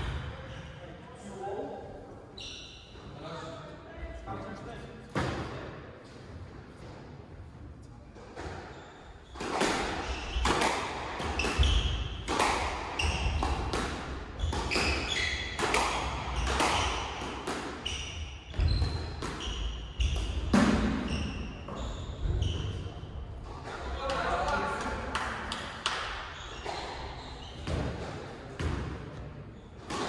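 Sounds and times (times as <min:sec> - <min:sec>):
shoe squeaks on wooden floor: 0:02.3 - 0:03.1, 0:11.4 - 0:12.2, 0:14.4 - 0:15.6, 0:17.8 - 0:20.4, 0:21.0 - 0:23.1, 0:26.4 - 0:27.7
racket hitting squash ball: 0:08.2 - 0:29.2, 0:29.8 - 0:30.0.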